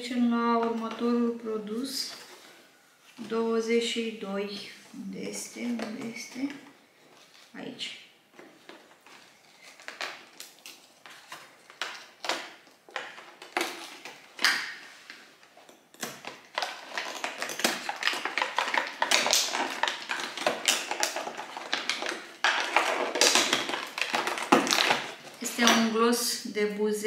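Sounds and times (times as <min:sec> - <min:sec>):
cardboard tearing and crackling: 0:08.6 - 0:14.7, 0:16.0 - 0:25.8.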